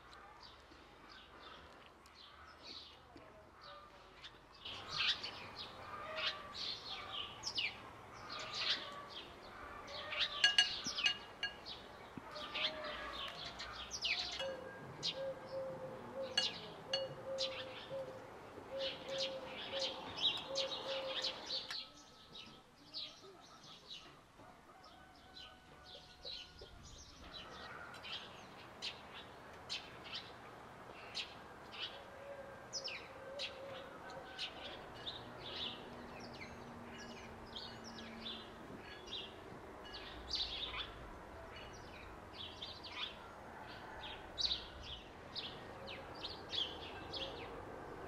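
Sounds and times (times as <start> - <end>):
birds chirping and singing: 3.6 - 24.2.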